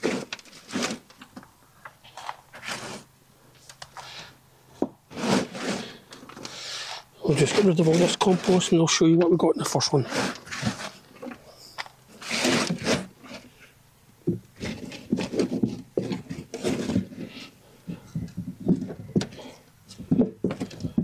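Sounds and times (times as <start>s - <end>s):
hands scraping through compost: 0.0s - 1.2s, 2.2s - 3.1s, 5.1s - 9.0s, 9.6s - 13.7s, 14.6s - 21.0s.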